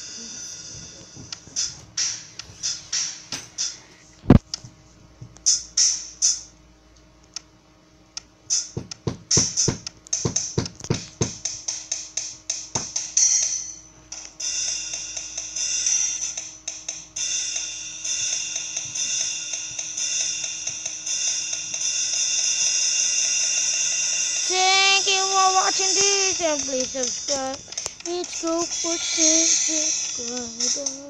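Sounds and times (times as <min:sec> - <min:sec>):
kick drum: 0:00.7 - 0:02.2, 0:04.2 - 0:05.6, 0:08.6 - 0:11.7, 0:12.5 - 0:13.1.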